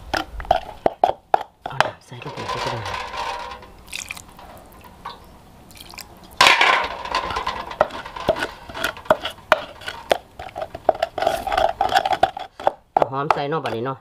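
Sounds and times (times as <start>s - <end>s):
pestle scraping: 0.0s - 13.9s
wooden pestle knocking in mortar: 7.8s - 13.8s.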